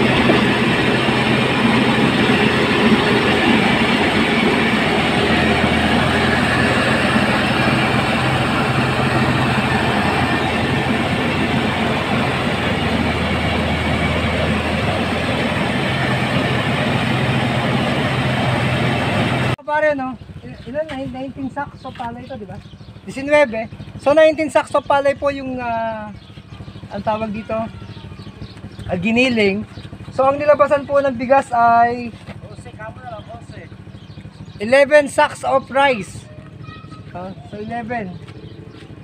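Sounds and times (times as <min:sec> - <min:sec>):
rice mill machinery rattling: 0:00.0 - 0:19.6.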